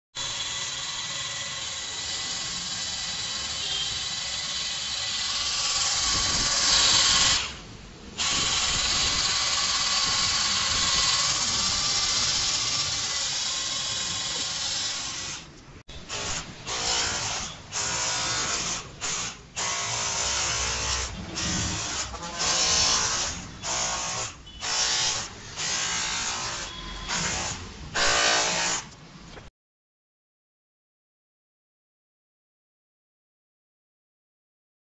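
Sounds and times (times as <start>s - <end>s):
cordless hammer drill running: 0.2s - 7.6s, 8.2s - 15.2s.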